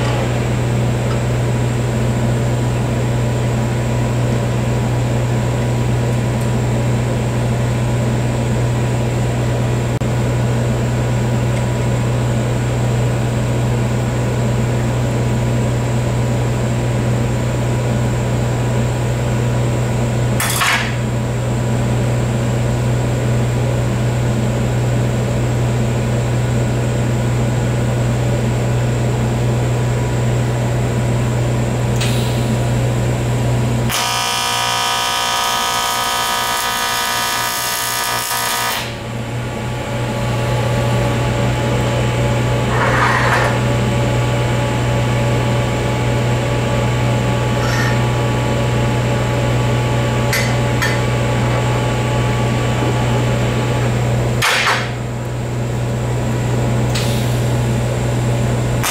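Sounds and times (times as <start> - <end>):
shop equipment humming: 0.0 - 58.9.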